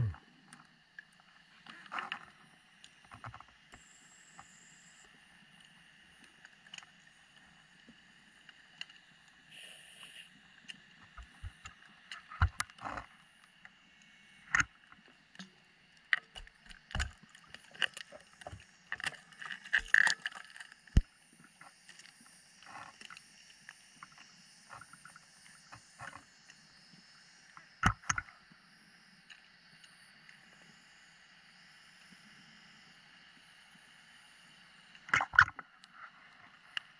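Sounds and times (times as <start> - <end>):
underwater hiss: 9.4 - 10.5
diving gear clicks and knocks: 17.8 - 20.6.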